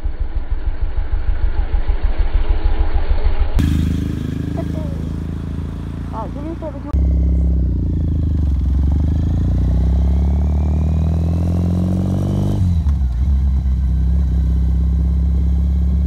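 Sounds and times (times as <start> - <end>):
motorcycle engine running: 3.6 - 16.0.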